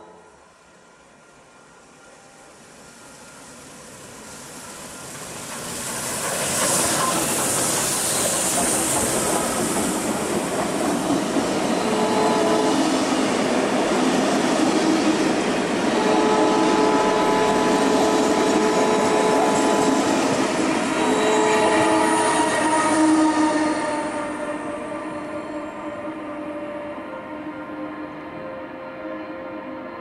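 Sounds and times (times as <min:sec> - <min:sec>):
steam locomotive passing: 0:00.0 - 0:30.0
train wheels squealing: 0:01.2 - 0:13.3, 0:17.6 - 0:30.0
steam hiss: 0:02.3 - 0:24.1.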